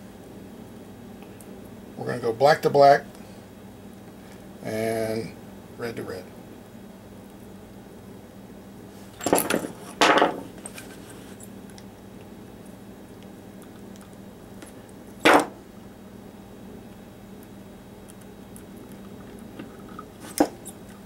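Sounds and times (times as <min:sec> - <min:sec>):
pliers clattering: 0:09.2 - 0:10.4.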